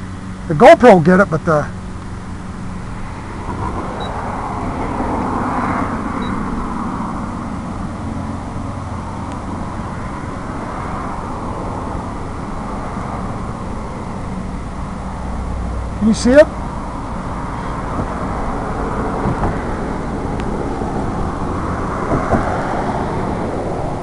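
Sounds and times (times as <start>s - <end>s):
outdoor background rumble: 0.0s - 24.0s.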